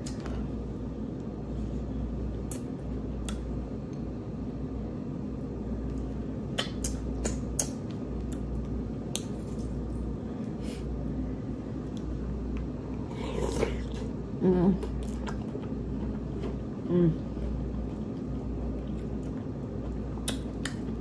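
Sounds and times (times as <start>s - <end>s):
squishy food noises: 0.0s - 11.0s, 11.7s - 21.0s
chewing food: 14.8s - 21.0s.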